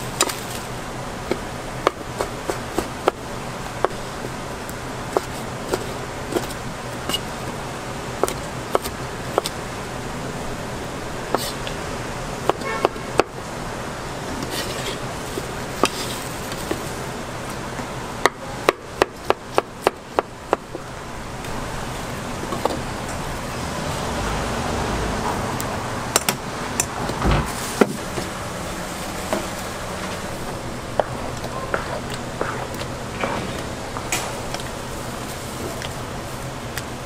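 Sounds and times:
steady background hum: 0.0s - 37.0s
knife chopping on wooden board: 8.2s - 9.6s.

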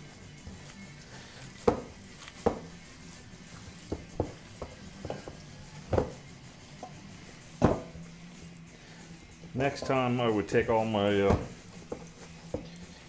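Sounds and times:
hands squishing meat mixture: 0.0s - 5.9s.

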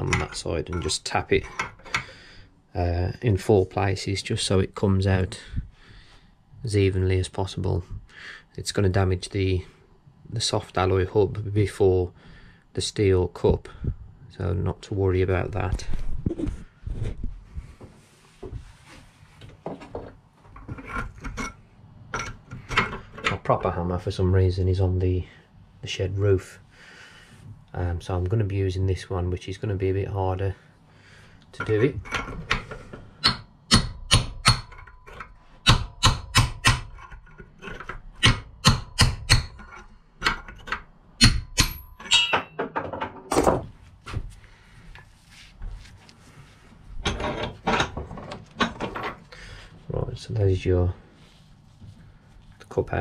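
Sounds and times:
tools rubbing and scraping: 0.0s - 2.2s, 16.1s - 23.5s, 31.6s - 33.4s, 36.8s - 38.3s
hammer tapping chisel on metal: 31.6s - 42.8s.

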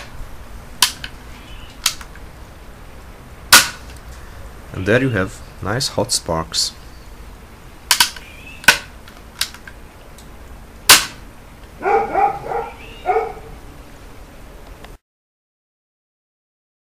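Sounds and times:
rifle lock metallic clicks: 1.8s - 2.2s, 7.9s - 9.8s
short yelping calls: 11.8s - 13.6s.

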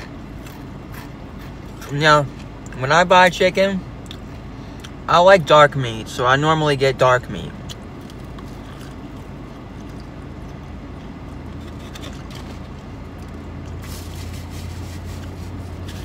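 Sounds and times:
chewing crispy food: 0.0s - 2.8s, 7.5s - 15.8s
car engine hum from cabin: 0.0s - 16.0s.

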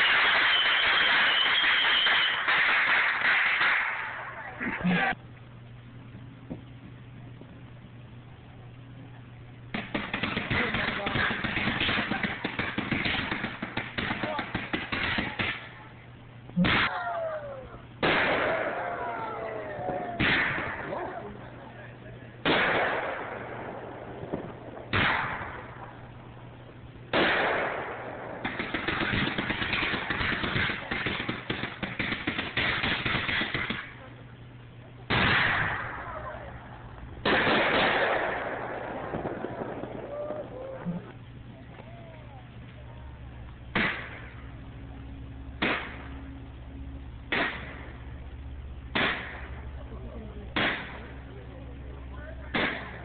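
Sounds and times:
rapid crackling of small pops: 0.0s - 4.0s, 9.7s - 15.8s, 28.4s - 34.1s, 42.5s - 44.5s
loud firework bangs echoing: 0.0s - 4.4s, 9.7s - 15.8s, 18.0s - 21.5s, 22.4s - 26.4s, 27.0s - 34.0s, 35.1s - 40.6s, 43.6s - 44.6s, 45.5s - 46.3s, 47.2s - 48.2s, 48.8s - 49.8s, 50.5s - 51.3s, 52.5s - 53.0s.

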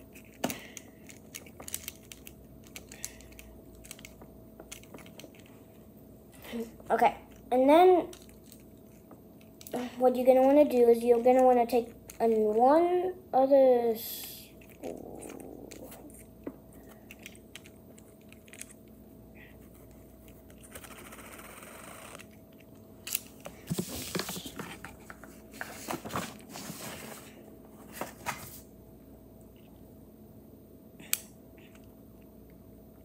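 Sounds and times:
rubbing of kit parts: 23.5s - 28.6s.

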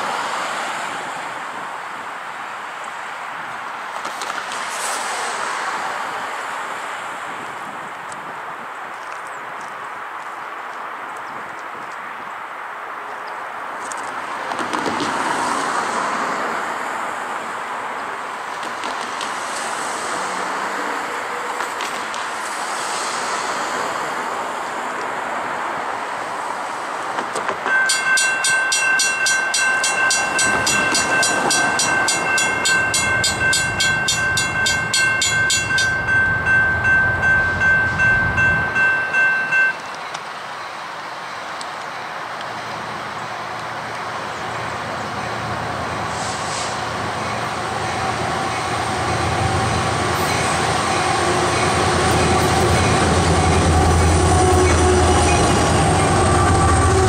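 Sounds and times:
train wheels rushing on rail: 3.5s - 8.2s, 13.8s - 57.0s
bell ringing in quick pulses: 27.7s - 40.0s.

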